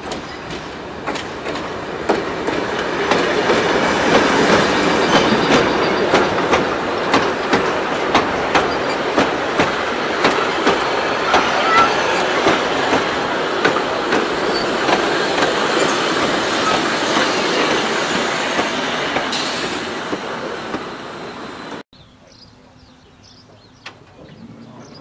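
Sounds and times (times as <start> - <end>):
wheels clicking over rail joints: 0.0 - 19.4
steel wheels rumbling on rails: 0.0 - 21.8.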